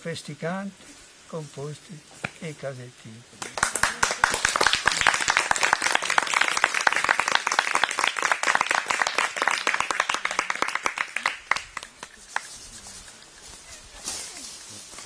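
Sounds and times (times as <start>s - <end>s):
group applauding: 3.4s - 12.5s.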